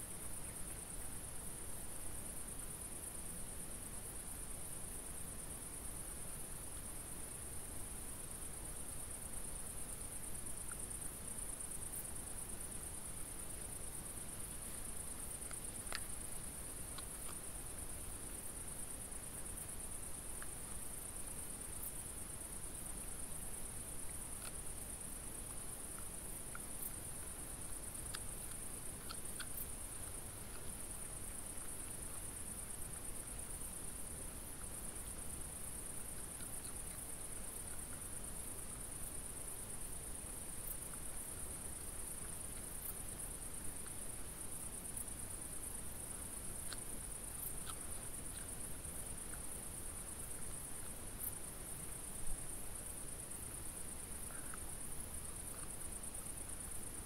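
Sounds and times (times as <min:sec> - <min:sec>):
night insects chirring: 0:00.0 - 0:57.0
faint sharp ticks: 0:13.4 - 0:18.4, 0:22.9 - 0:24.7, 0:25.4 - 0:33.4, 0:46.5 - 0:49.5.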